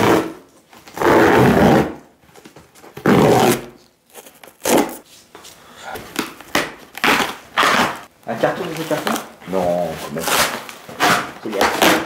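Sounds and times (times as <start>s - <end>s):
cardboard tearing: 3.0s - 5.0s, 6.5s - 12.0s.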